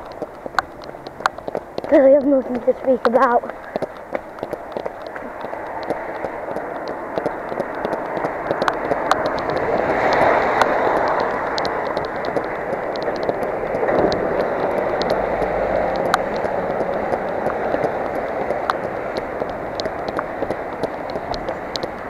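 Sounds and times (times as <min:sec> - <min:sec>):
running footsteps on wet pavement: 0:00.0 - 0:22.0
tyres on wet road: 0:00.0 - 0:22.0
rain hissing: 0:05.2 - 0:22.0.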